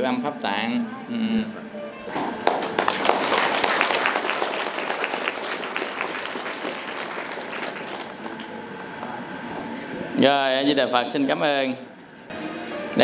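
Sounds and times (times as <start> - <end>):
audience applauding: 2.2 - 8.7.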